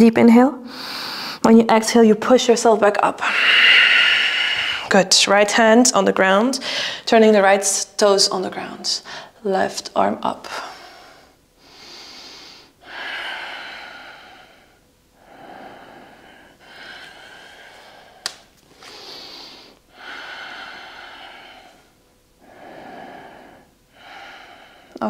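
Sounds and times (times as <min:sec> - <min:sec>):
deep breathing: 0:00.6 - 0:01.5, 0:03.3 - 0:04.9, 0:06.6 - 0:07.1, 0:10.6 - 0:25.0.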